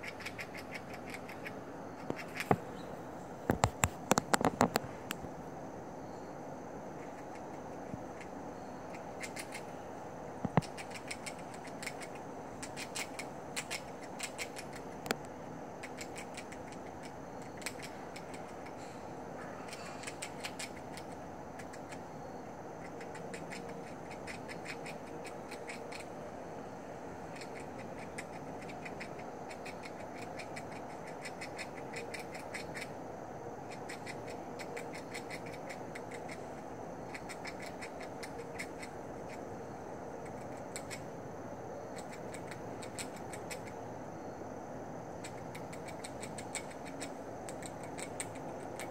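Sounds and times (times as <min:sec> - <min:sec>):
squirrel gnawing crunchy clicks: 0:00.0 - 0:05.3, 0:06.8 - 0:43.9, 0:45.0 - 0:48.9.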